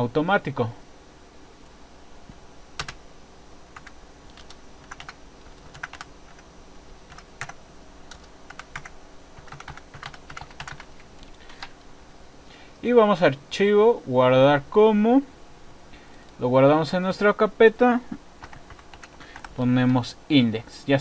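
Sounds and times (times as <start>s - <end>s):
computer keyboard typing: 2.8s - 3.0s, 3.8s - 6.5s, 7.1s - 11.7s, 18.4s - 19.6s.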